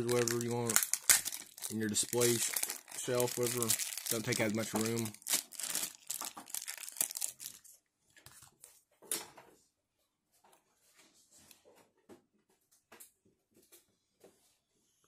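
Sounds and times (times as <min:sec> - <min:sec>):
plastic bag crinkling and tearing: 0:00.0 - 0:07.7.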